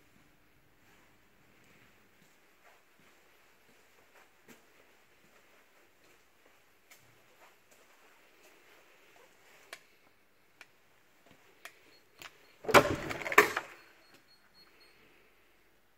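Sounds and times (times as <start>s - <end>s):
door latch clatter and knocks: 12.7s - 13.8s.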